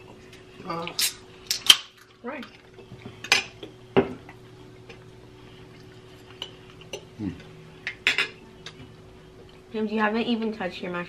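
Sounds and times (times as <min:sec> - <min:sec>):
faint steady hum: 0:00.0 - 0:11.0
cutlery clinking on plates: 0:07.9 - 0:08.4.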